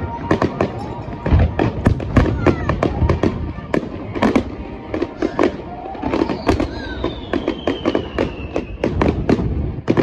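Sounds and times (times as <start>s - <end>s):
firework bangs and crackling: 0.0s - 10.0s
firework whistle falling in pitch: 5.7s - 9.0s.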